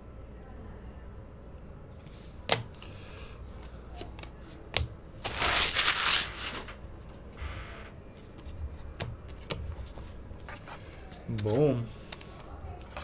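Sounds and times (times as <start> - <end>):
packaging rustling: 5.2 - 6.8
cards clicking: 8.4 - 13.0.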